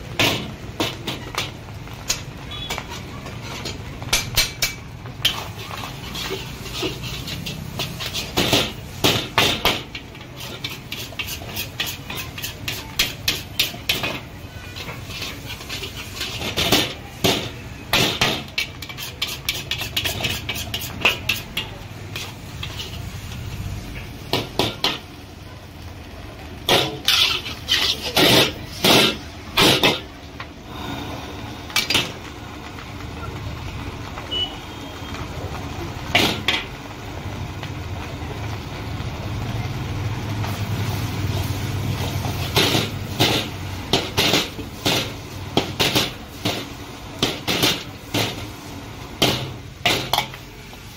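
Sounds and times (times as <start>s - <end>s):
metal spatula clanging on wok: 0.2s - 23.3s, 49.2s - 50.4s.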